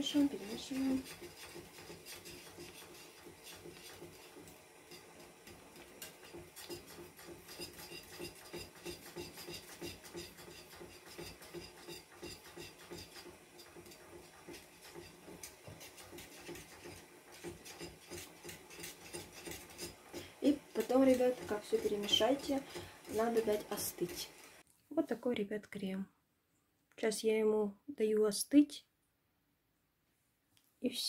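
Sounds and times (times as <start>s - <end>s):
stirring cream in a glass bowl: 0.0s - 24.6s.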